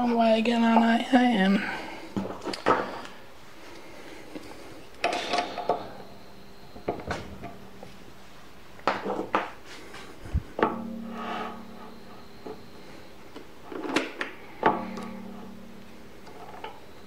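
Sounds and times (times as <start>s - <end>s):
metal lathe parts clattering: 5.0s - 6.0s.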